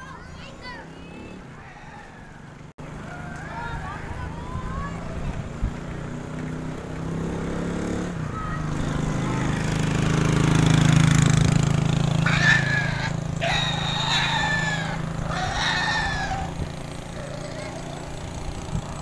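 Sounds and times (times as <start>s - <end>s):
motor engine droning: 0.9s - 19.0s
rooster crowing: 12.2s - 16.6s.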